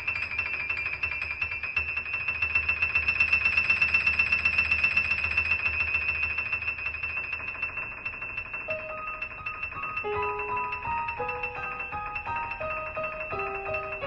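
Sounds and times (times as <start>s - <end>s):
high pulsing tone: 7.7s - 14.0s.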